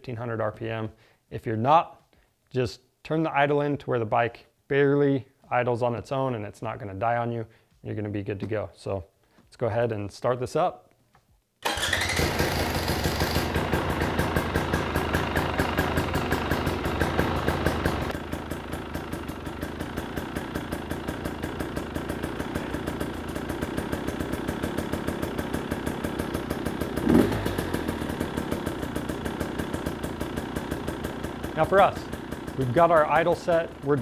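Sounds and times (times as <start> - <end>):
two-stroke engine idling: 11.7 - 34.0.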